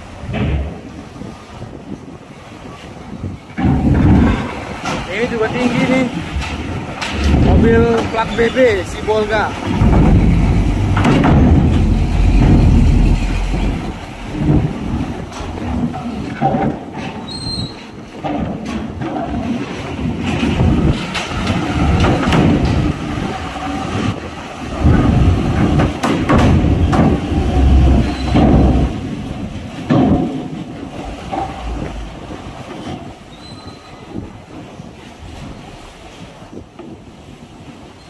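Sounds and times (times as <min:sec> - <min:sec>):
wheels clanking on steel plates: 0:03.4 - 0:34.8
diesel truck engine rumble: 0:09.5 - 0:16.0, 0:26.6 - 0:29.4, 0:31.0 - 0:32.7.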